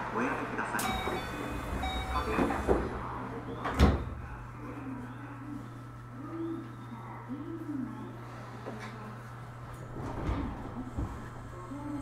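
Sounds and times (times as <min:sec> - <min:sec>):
steady low hum: 0:00.1 - 0:12.0
train doors closing thud: 0:00.8 - 0:04.3.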